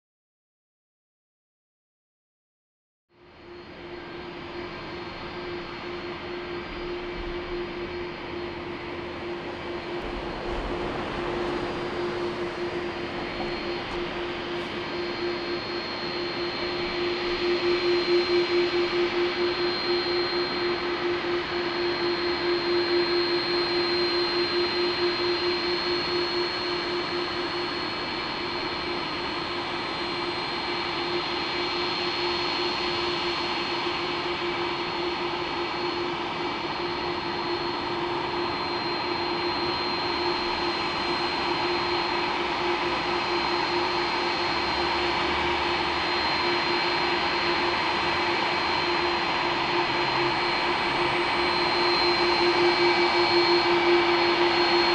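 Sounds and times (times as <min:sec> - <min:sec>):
jet engines idling: 0:04.0 - 0:22.2, 0:34.7 - 0:54.9.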